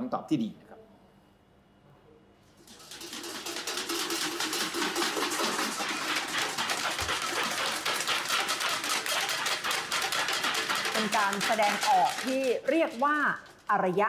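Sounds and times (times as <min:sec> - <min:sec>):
pots and pans struck with sticks: 0:02.6 - 0:12.6.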